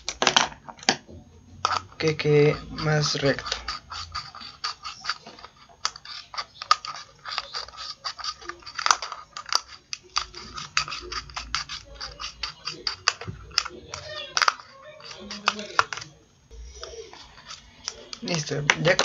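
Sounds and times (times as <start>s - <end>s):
scissors snipping plastic: 2.7s - 16.1s.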